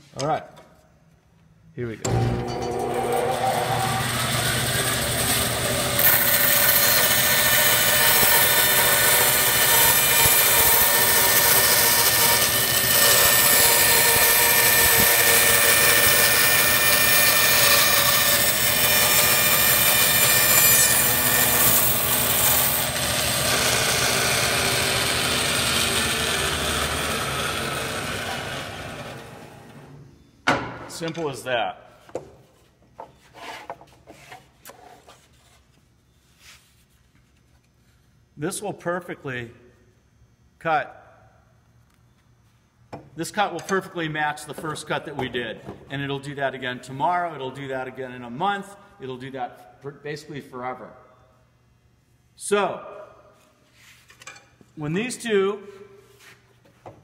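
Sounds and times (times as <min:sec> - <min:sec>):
bandsaw cutting wood: 0:02.1 - 0:29.8.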